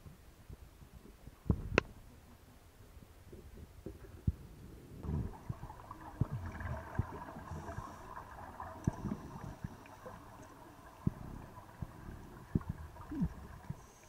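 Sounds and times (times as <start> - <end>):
muffled rumble: 0.6 - 10.2
underwater exhaust bubbles gurgling: 5.0 - 14.0.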